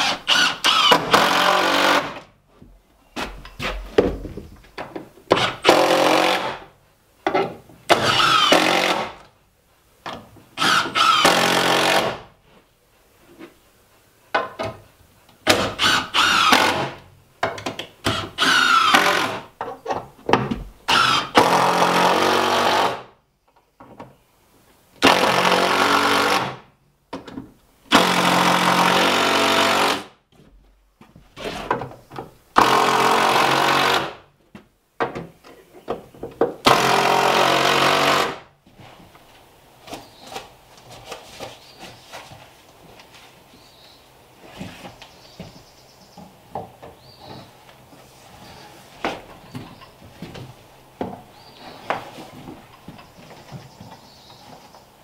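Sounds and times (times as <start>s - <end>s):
power drill driving screws into wood: 0.0s - 2.2s, 5.3s - 6.6s, 7.9s - 9.2s, 10.6s - 12.3s, 15.4s - 17.0s, 18.0s - 19.4s, 20.9s - 23.1s, 25.0s - 26.6s, 27.9s - 30.2s, 32.6s - 34.2s, 36.6s - 38.4s.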